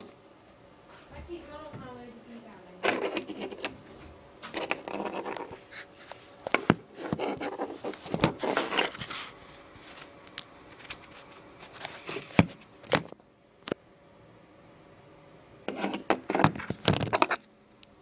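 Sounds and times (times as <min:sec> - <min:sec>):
rustling and scraping: 0:00.8 - 0:13.2, 0:15.7 - 0:17.5.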